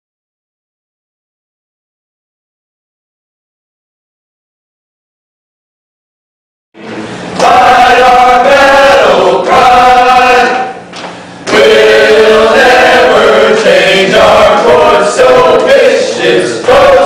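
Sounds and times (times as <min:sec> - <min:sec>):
choir singing long held notes: 0:06.8 - 0:10.9, 0:11.5 - 0:17.0.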